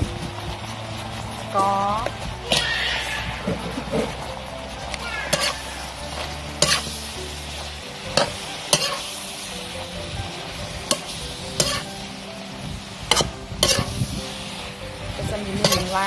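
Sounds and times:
food sizzling in a metal pan: 0.0s - 16.0s
spatula clanking against pan: 5.3s - 7.0s, 8.1s - 9.1s, 10.8s - 11.9s, 13.1s - 13.9s, 15.6s - 16.0s.

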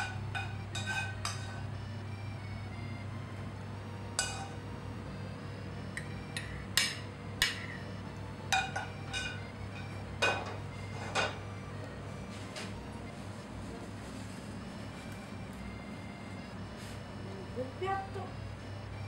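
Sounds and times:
spoon clinking on pan and plate: 0.0s - 1.6s, 4.2s - 4.6s, 8.5s - 9.4s
steady low hum: 0.0s - 19.0s.

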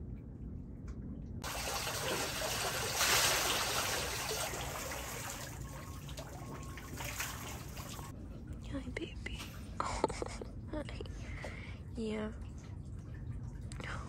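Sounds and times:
water trickling and splashing: 1.4s - 8.1s, 11.4s - 14.0s.

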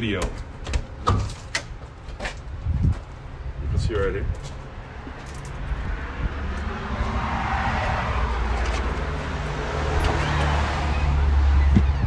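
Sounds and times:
car passing: 4.6s - 12.0s.

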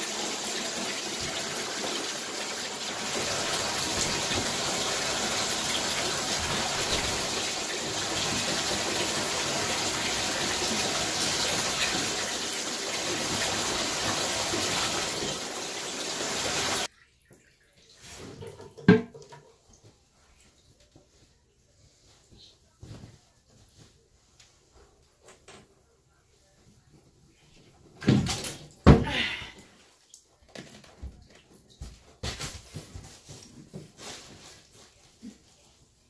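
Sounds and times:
shower water running: 0.0s - 16.9s.

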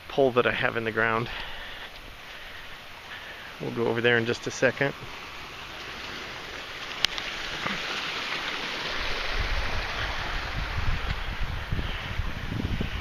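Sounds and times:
wind buffeting microphone: 7.2s - 13.0s
wind rushing: 8.5s - 13.0s.

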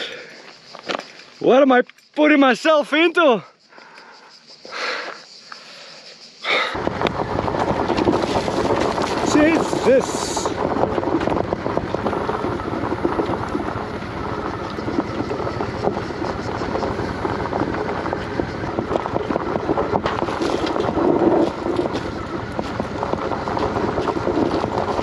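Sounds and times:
motorcycle engine running: 6.8s - 25.0s
tyres crunching over gravel: 6.8s - 25.0s.

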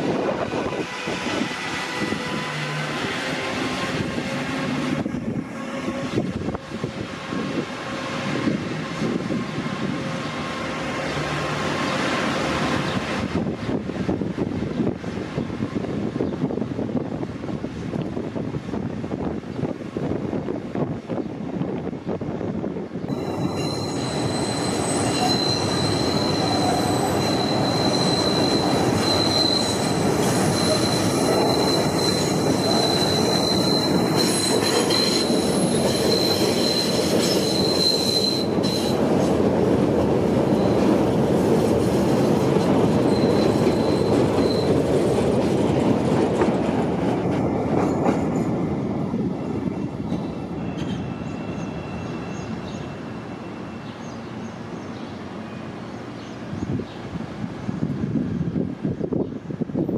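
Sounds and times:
wheels rumbling on rail: 0.0s - 59.9s
train wheels squealing: 23.1s - 39.3s, 40.4s - 41.1s, 41.8s - 45.2s, 49.9s - 57.1s.

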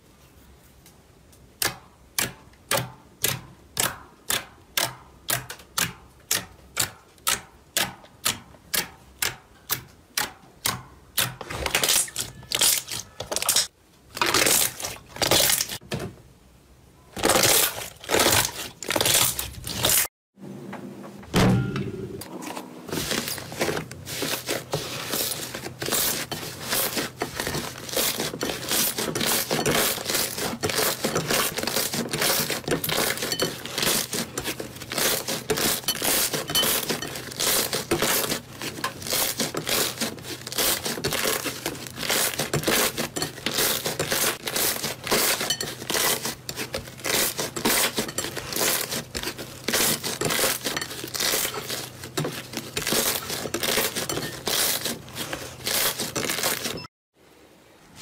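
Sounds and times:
slime stretching and folding: 22.9s - 56.8s.

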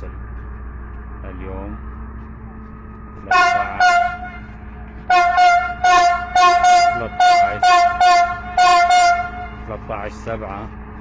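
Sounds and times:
train horn blasts: 3.3s - 9.8s.

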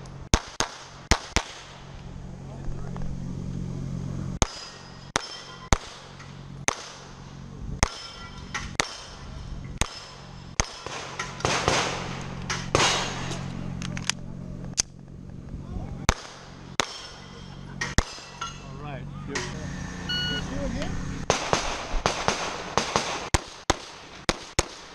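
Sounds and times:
pistol shots: 0.3s - 1.8s, 4.4s - 7.1s, 7.8s - 9.2s, 9.8s - 13.4s, 16.1s - 17.2s, 17.8s - 18.3s, 21.3s - 24.9s
steel plate ringing: 4.4s - 6.3s, 7.8s - 11.5s.

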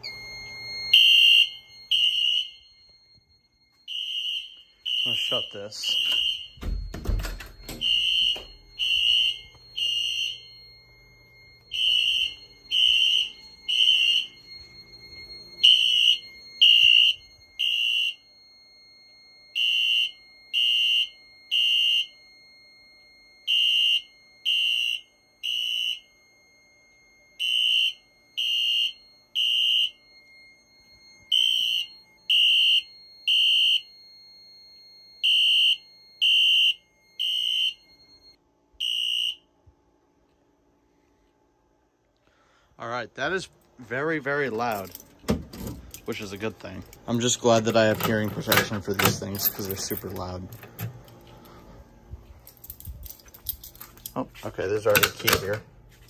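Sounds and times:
fire alarm horn blasts: 0.0s - 41.2s.

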